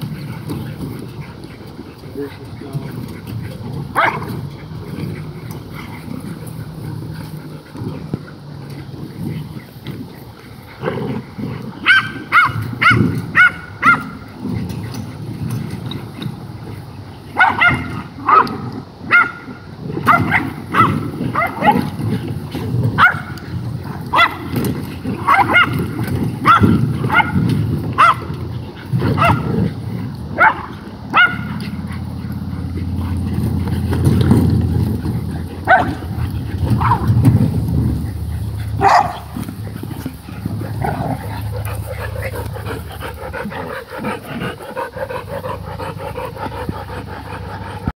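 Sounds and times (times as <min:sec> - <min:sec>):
steady low rumble: 0:00.0 - 0:17.4, 0:18.0 - 0:47.9
dogs barking and yipping: 0:00.0 - 0:47.9.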